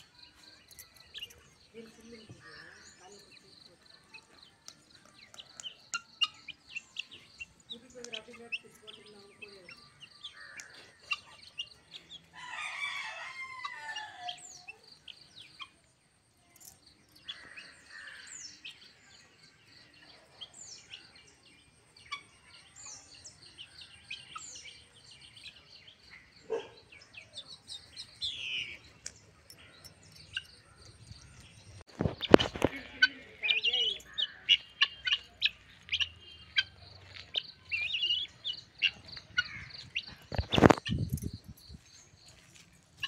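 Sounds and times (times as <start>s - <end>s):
rooster crowing: 12.4s - 14.4s.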